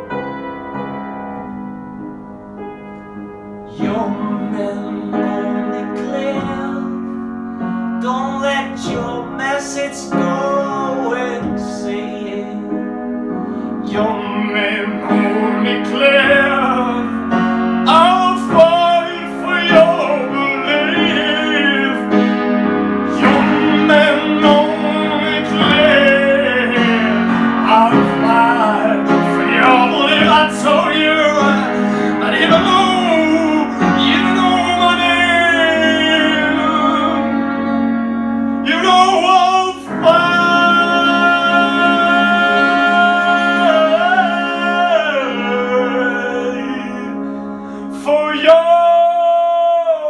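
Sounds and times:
upright piano chords: 0:00.0 - 0:50.0
person singing long held notes: 0:13.8 - 0:37.6, 0:38.6 - 0:50.0.

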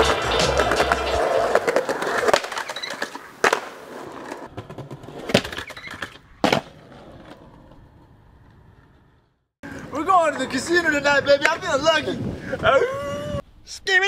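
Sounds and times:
skateboard clacks and impacts: 0:00.0 - 0:07.8
skateboard wheels rolling on concrete: 0:00.0 - 0:13.4.

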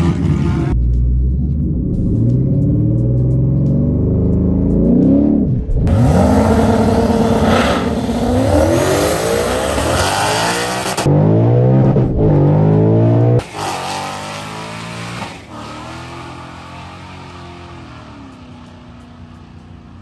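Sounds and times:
car engine accelerating hard: 0:00.0 - 0:18.7.

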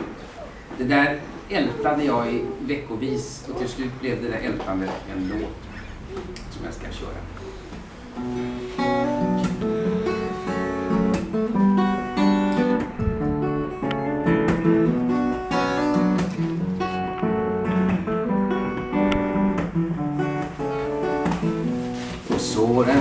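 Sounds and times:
fingerpicked acoustic guitar: 0:07.2 - 0:23.0.

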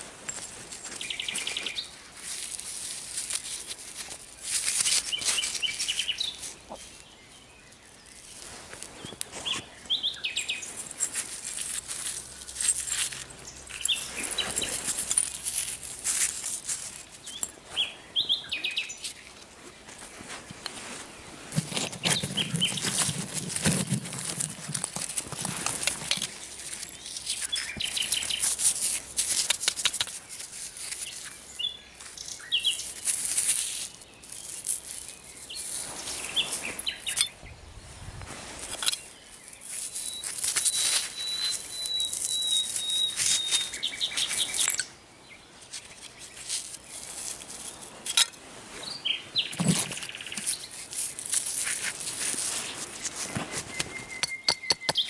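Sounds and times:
hands scraping through soil: 0:00.0 - 0:07.2, 0:08.0 - 0:37.4, 0:38.0 - 0:44.8, 0:45.6 - 0:55.0
songbird singing: 0:00.2 - 0:55.0
metal scrap handled: 0:38.6 - 0:41.3, 0:45.7 - 0:48.4.

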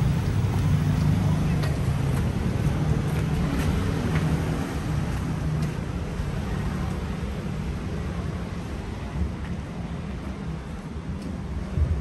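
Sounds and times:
street noise rumble: 0:00.0 - 0:12.0.

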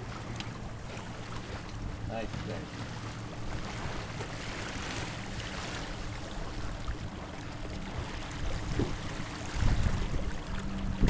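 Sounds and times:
choppy water splashing on hull: 0:00.0 - 0:11.0
wind buffeting microphone: 0:06.1 - 0:11.0.

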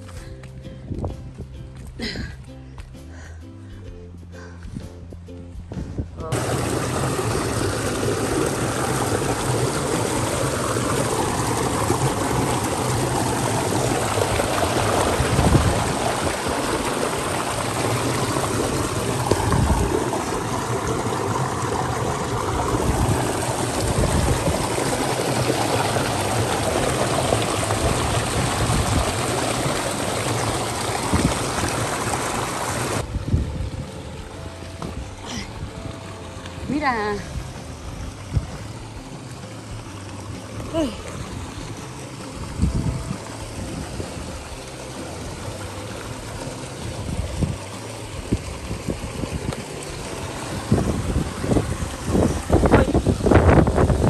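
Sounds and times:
dull low thumps: 0:00.0 - 0:09.6
creek water rushing over rocks: 0:06.3 - 0:54.0.

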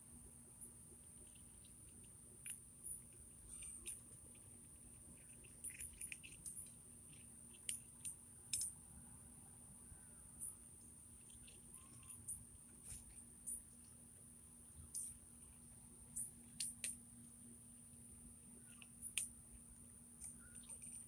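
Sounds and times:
cats crunching dry kibble: 0:00.9 - 0:08.8, 0:11.0 - 0:14.1.

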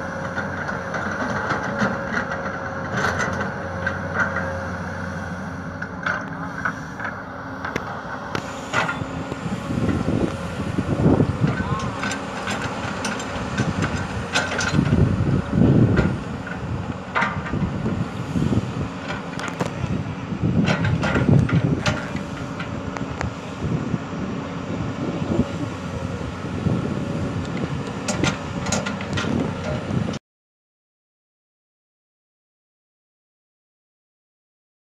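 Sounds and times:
excavator clanks and knocks: 0:00.0 - 0:04.7, 0:05.8 - 0:18.2, 0:18.9 - 0:23.8, 0:25.1 - 0:30.2
excavator diesel engine running: 0:00.0 - 0:30.2.

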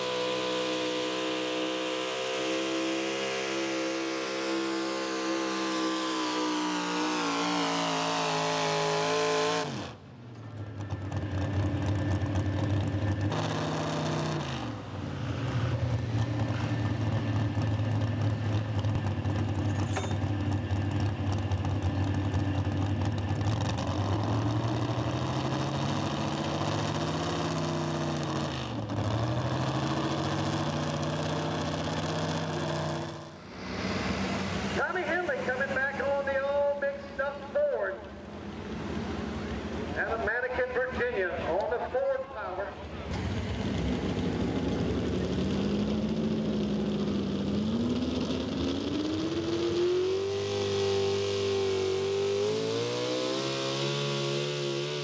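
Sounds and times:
truck engine under full load: 0:00.0 - 0:55.0.

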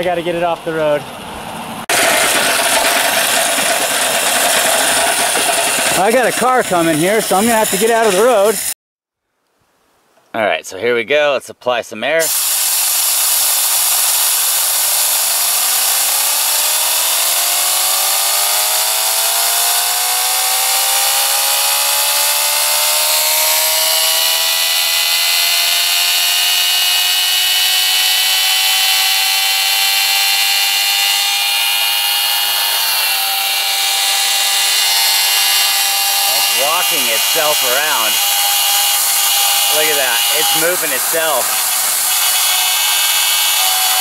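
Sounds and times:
turbine whine rising: 0:01.1 - 0:08.8, 0:12.2 - 0:44.0
air hissing: 0:12.2 - 0:16.6, 0:33.4 - 0:44.0.

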